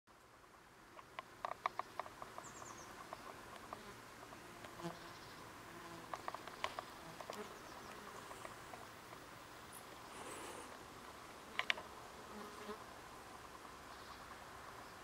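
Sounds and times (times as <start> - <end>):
fly buzzing: 5.7 - 8.9, 11.4 - 12.8.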